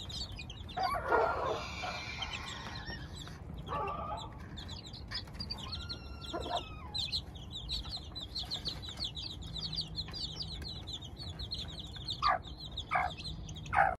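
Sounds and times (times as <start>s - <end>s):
chicks peeping: 0.0s - 14.0s
hen clucking: 0.0s - 14.0s.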